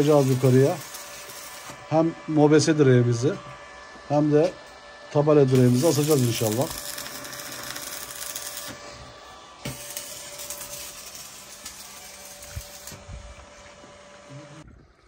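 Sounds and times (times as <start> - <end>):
arc welding crackling hiss: 0.0 - 3.4, 5.2 - 13.6.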